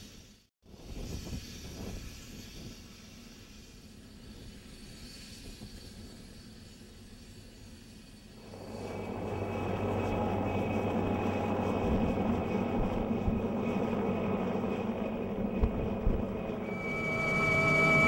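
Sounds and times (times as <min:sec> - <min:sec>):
helicopter rotor and engine noise: 0:06.8 - 0:18.0.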